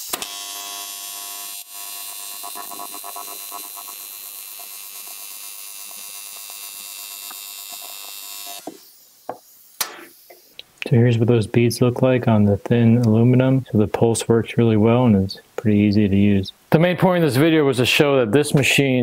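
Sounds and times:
welding arc buzzing: 0.0 - 10.6.

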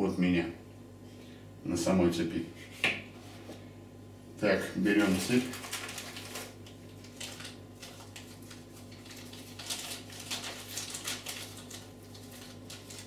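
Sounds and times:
plastic bag crinkling: 5.0 - 13.0.

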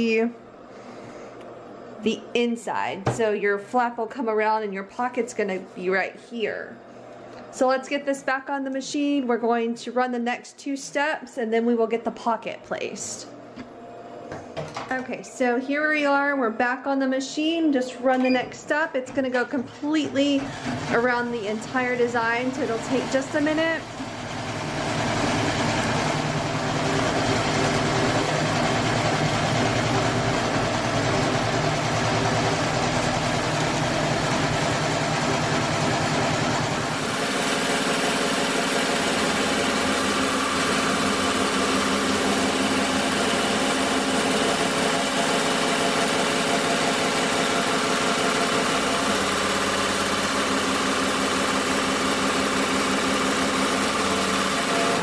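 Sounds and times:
embroidery machine running: 20.0 - 55.0.

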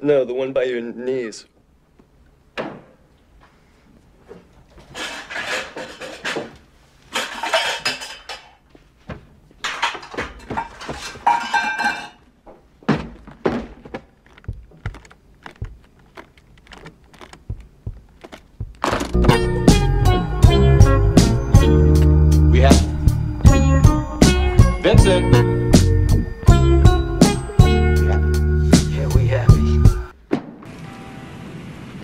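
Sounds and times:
objects clinking in a cupboard: 7.1 - 8.6, 9.6 - 12.3
briefcase knocks: 17.4 - 19.4.

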